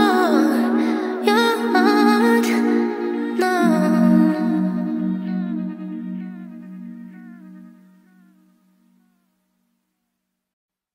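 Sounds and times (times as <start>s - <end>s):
sustained synth chords: 0.1s - 9.0s
sliding synth melody: 1.7s - 8.7s
synth bass: 2.6s - 8.8s.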